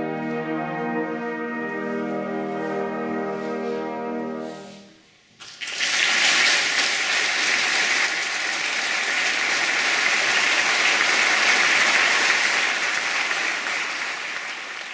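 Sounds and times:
audience applauding: 5.4 - 14.9.

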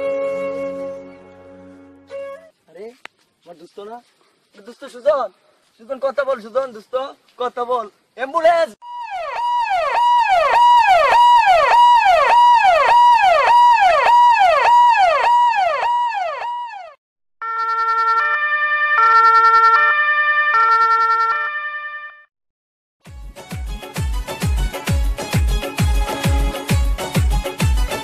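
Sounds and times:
ambulance siren: 8.8 - 22.3.

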